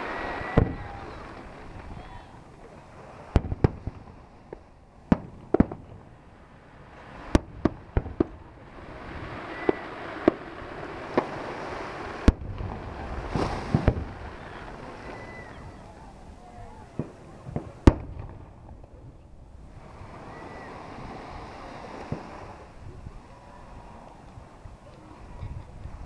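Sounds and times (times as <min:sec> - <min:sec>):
fireworks bangs: 0:00.0 - 0:18.8, 0:19.8 - 0:22.7.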